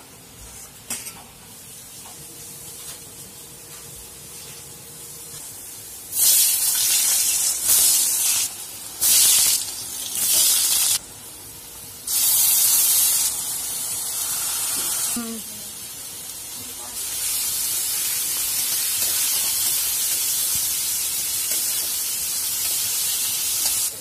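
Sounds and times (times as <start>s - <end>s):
potatoes sizzling in hot oil: 5.6s - 11.0s, 12.1s - 24.0s.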